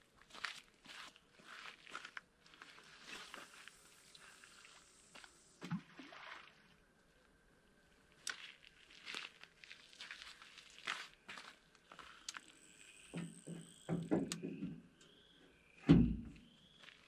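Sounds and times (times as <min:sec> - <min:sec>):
footsteps scuffing on dirt: 0:00.1 - 0:03.8, 0:08.3 - 0:12.6, 0:16.4 - 0:17.0
dull thump: 0:15.8 - 0:16.4.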